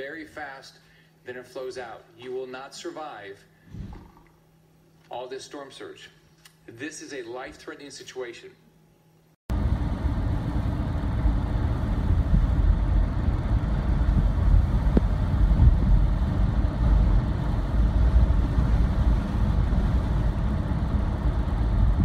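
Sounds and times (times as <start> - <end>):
car road and engine rumble: 9.5 - 22.0.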